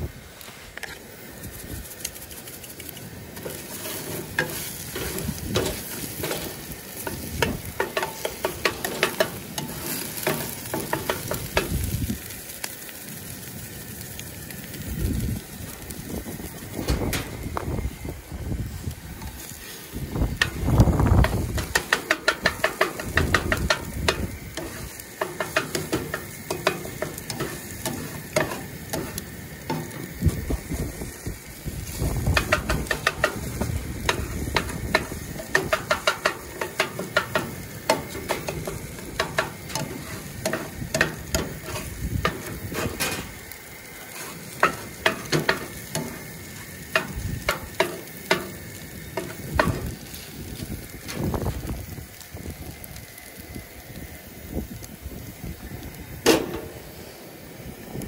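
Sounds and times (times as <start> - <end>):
food sizzling in frying pan: 0.0 - 58.0
spatula scraping and tapping pan: 2.3 - 11.9, 21.2 - 30.4, 31.9 - 43.3, 44.0 - 49.9.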